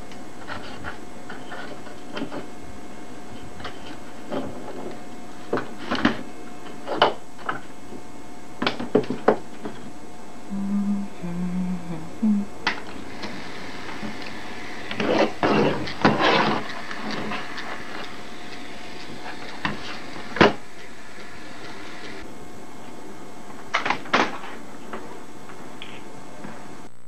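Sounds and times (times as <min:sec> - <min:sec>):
low hum: 0:09.5 - 0:27.0.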